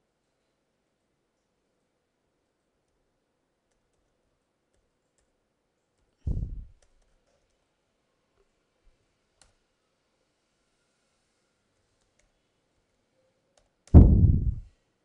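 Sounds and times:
loud deep thump: 6.3 - 6.7, 14.0 - 14.7.

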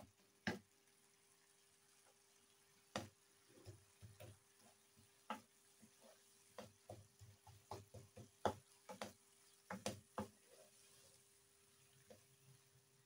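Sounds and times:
wooden spoon scraping a pan: 3.4 - 12.8.

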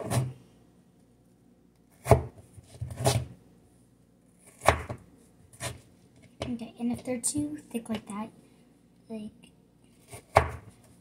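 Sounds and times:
knife chopping potato on board: 0.0 - 0.4, 1.9 - 3.3, 4.4 - 5.0, 10.0 - 10.7.

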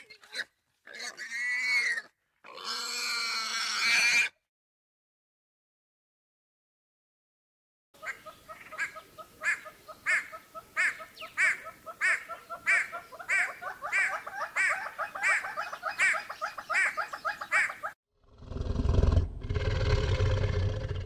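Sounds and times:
hornbill cackling: 8.0 - 18.0.

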